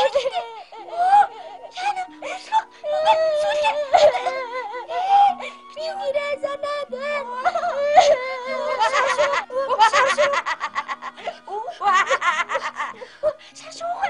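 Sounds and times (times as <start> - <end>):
high-pitched voices laughing: 0.0 - 1.3, 7.2 - 13.4.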